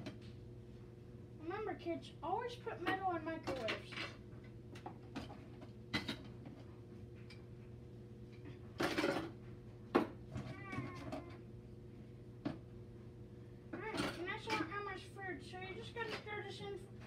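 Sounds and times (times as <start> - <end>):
steady low hum: 0.0 - 17.0.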